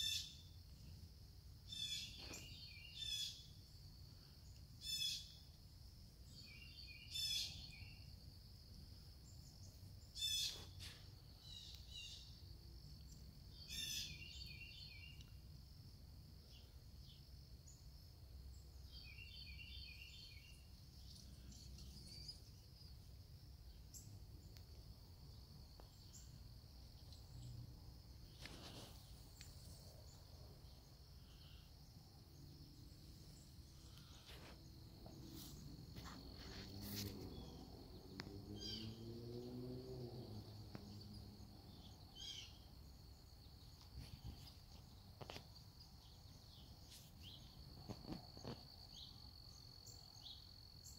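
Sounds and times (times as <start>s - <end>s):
bird chirping: 0.0s - 1.0s, 1.7s - 5.5s, 6.2s - 8.2s, 9.2s - 15.4s, 18.5s - 39.7s, 40.4s - 50.9s
insects trilling: 0.0s - 50.9s
birds calling: 33.8s - 39.1s.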